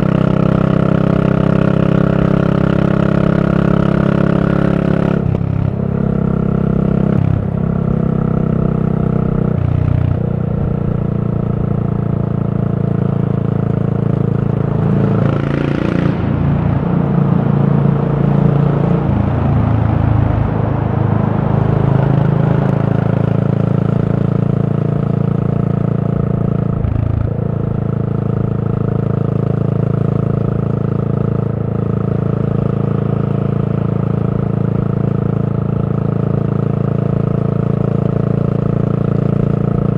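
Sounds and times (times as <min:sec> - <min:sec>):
motorcycle exhaust note: 0:00.0 - 0:39.9.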